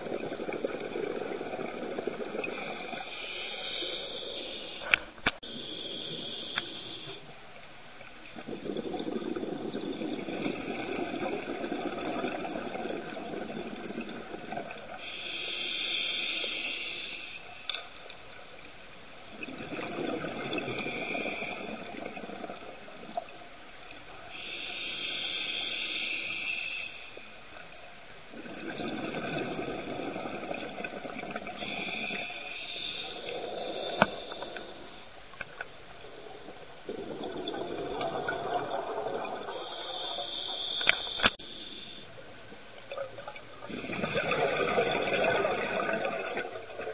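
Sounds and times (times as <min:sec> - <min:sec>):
gurgling exhaled bubbles: 0:00.0 - 0:03.5, 0:08.4 - 0:15.0, 0:19.3 - 0:23.4, 0:28.3 - 0:35.0, 0:36.0 - 0:40.5, 0:42.9 - 0:46.9
hissing regulator in-breaths: 0:02.4 - 0:07.3, 0:15.0 - 0:17.7, 0:24.3 - 0:27.3, 0:31.5 - 0:35.1, 0:39.4 - 0:42.2.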